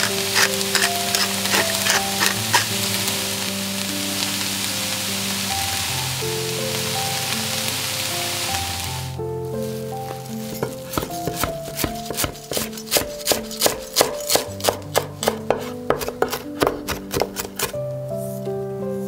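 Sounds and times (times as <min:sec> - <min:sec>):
background music: 0:00.0 - 0:19.0
knife chopping on wooden board: 0:10.5 - 0:17.8.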